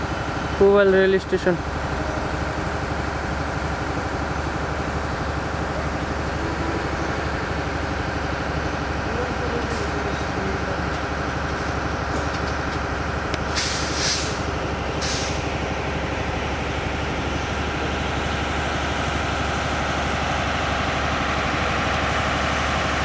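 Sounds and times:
short hisses: 0:13.5 - 0:14.4, 0:15.0 - 0:15.4.

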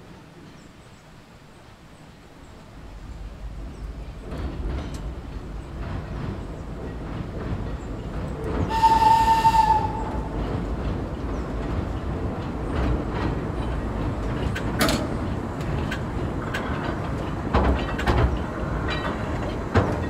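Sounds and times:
train wheels rumbling on track: 0:00.0 - 0:20.0
train whistle blast: 0:08.7 - 0:10.4.

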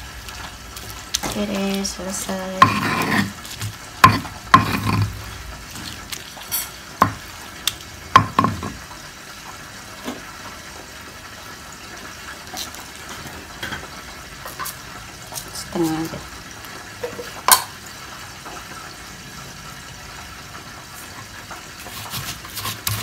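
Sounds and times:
utensil scraping against a dish: 0:00.8 - 0:07.2, 0:21.8 - 0:23.0.

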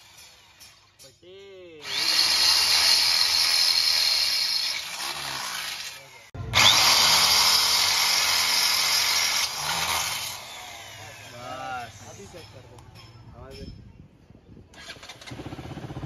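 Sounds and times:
electric drill boring into metal: 0:01.8 - 0:11.6.

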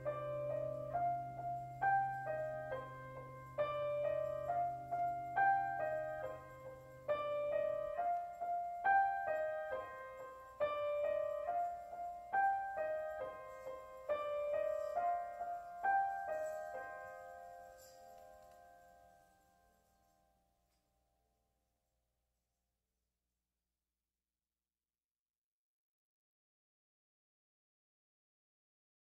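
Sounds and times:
gentle keyboard melody: 0:00.0 - 0:20.5.

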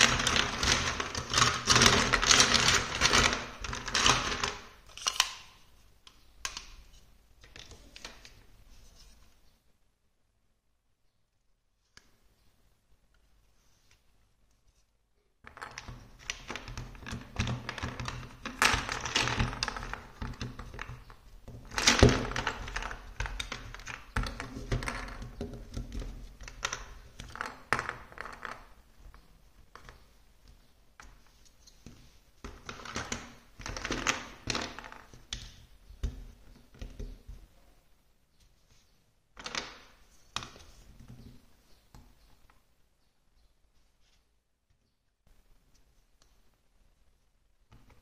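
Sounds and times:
plastic blocks clattering: 0:00.0 - 0:05.6, 0:15.5 - 0:30.0, 0:32.4 - 0:37.3.

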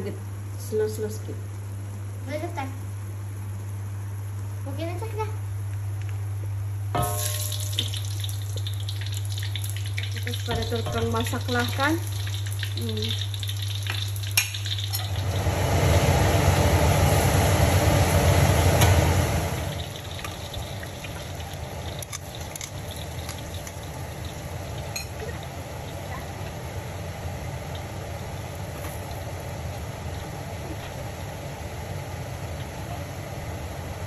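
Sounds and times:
low hum: 0:06.5 - 0:34.0
food sizzling in hot oil: 0:06.9 - 0:32.2.

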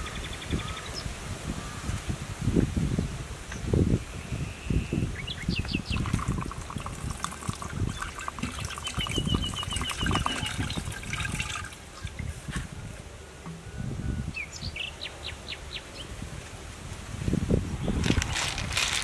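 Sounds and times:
birds chirping: 0:03.5 - 0:11.5
water pouring into a pot: 0:05.9 - 0:12.2.

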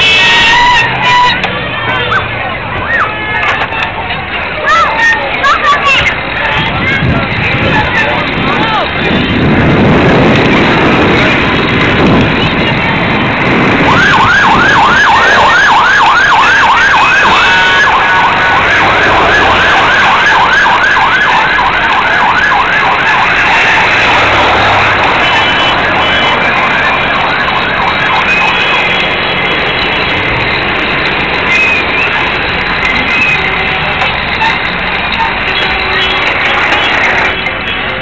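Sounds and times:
road traffic: 0:00.0 - 0:38.0
wind noise: 0:06.0 - 0:33.4
emergency siren yelping: 0:13.0 - 0:33.5.

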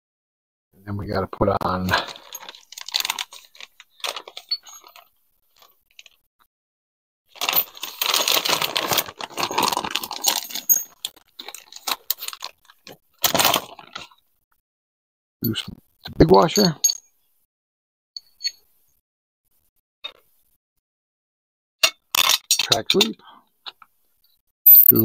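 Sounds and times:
metal washers clinking and rattling: 0:02.0 - 0:06.2, 0:07.4 - 0:12.5, 0:21.8 - 0:23.1.

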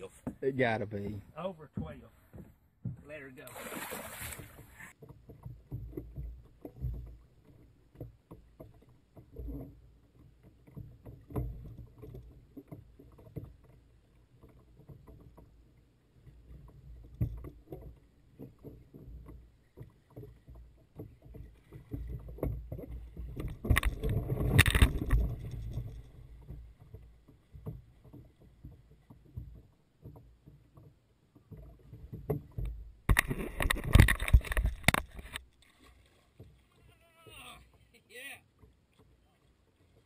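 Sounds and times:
water slapping kayak hull: 0:00.0 - 0:40.0
splashing of wading: 0:01.8 - 0:40.0.

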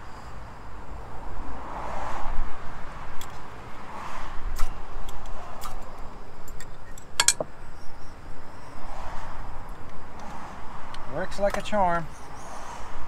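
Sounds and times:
clinks of metal cooking gear: 0:06.5 - 0:07.4.

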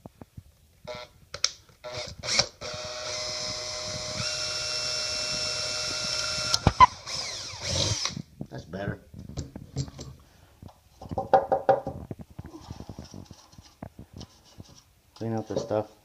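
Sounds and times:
electric drill whirring: 0:01.8 - 0:08.2
drill boring through plastic: 0:01.9 - 0:08.2.

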